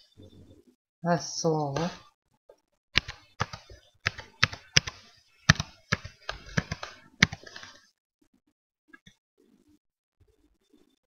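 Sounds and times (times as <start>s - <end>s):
typing on computer keyboard: 3.0s - 7.7s.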